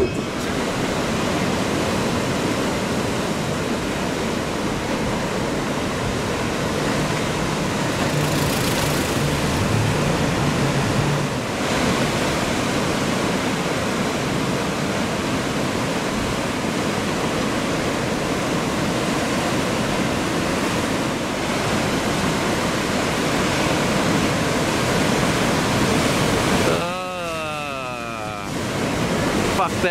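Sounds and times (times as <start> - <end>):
ocean surf waves breaking: 0.0 - 29.9
low hum: 6.4 - 11.7.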